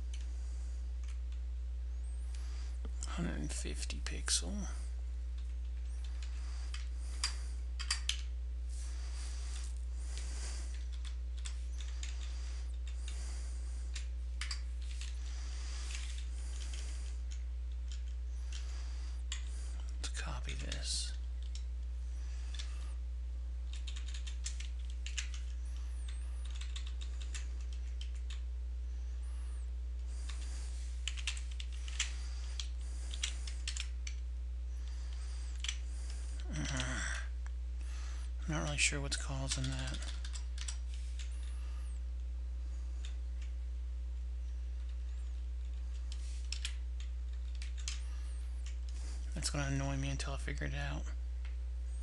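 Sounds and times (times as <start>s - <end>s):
low electrical hum: 0.0s - 52.0s
computer keyboard typing: 23.7s - 25.5s, 26.4s - 28.4s, 31.0s - 34.2s, 39.5s - 40.8s
keyboard and mouse clicks: 26.4s - 28.4s.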